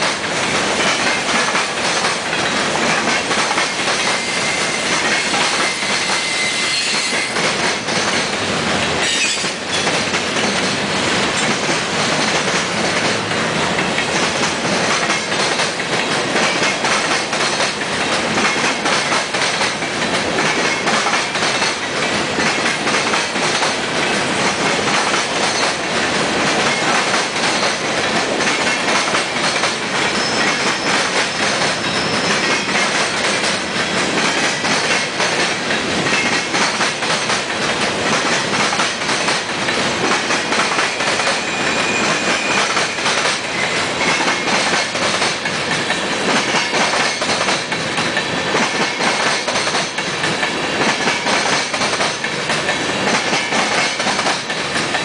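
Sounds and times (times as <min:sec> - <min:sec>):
train wheel clickety-clack: 0:00.0 - 0:55.0
high wheel squeal: 0:04.0 - 0:07.5, 0:09.0 - 0:09.8, 0:30.2 - 0:32.7, 0:41.2 - 0:43.0.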